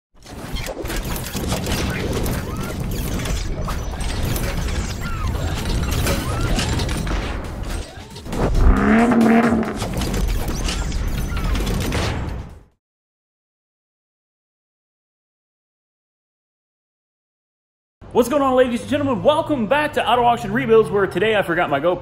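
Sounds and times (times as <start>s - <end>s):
mechanical clicking and clanking: 0.2s - 8.3s, 9.7s - 12.4s
wavering pitched tone: 8.6s - 9.9s.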